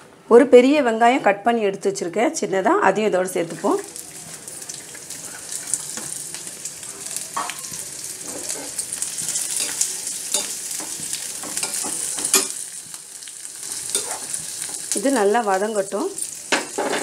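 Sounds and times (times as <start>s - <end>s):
onion sizzling in hot oil: 3.2s - 17.0s
steel spoon scraping pan: 13.9s - 14.4s.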